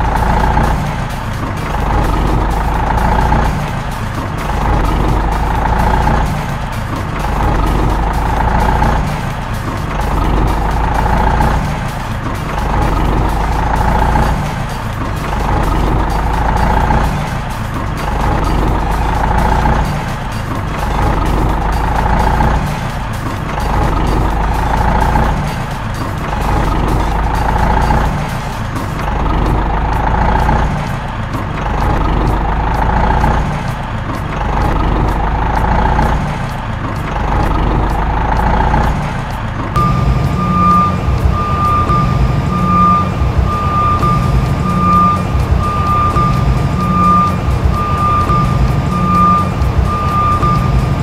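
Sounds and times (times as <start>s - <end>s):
simulated diesel engine sound: 0.0s - 51.0s
reversing alarm beeping: 39.8s - 51.0s.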